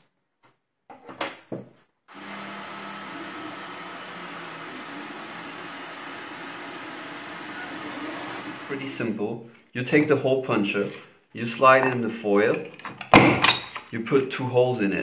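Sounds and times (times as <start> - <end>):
cooling fans whirring: 2.1 - 9.1
stepper motors humming: 2.1 - 9.1.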